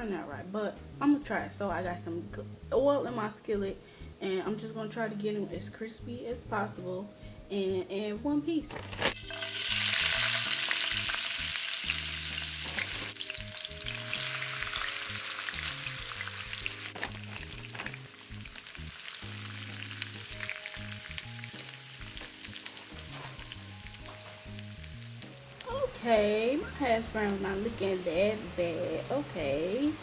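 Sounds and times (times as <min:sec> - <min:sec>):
potatoes sizzling in oil: 0:08.8 - 0:30.0.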